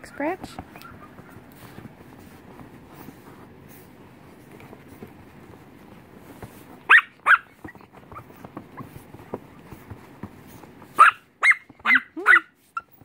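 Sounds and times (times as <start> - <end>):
fabric rustling: 0.0 - 11.2
puppy yapping: 6.9 - 9.2, 10.9 - 13.0.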